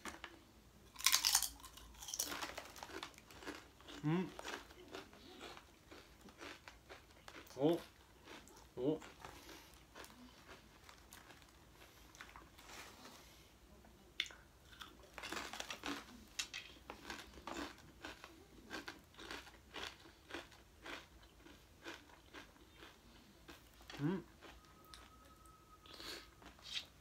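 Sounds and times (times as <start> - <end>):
crisp chewing crunches: 0.9 - 12.9, 14.7 - 25.1
chip bag crinkling: 1.0 - 7.5, 15.0 - 16.2.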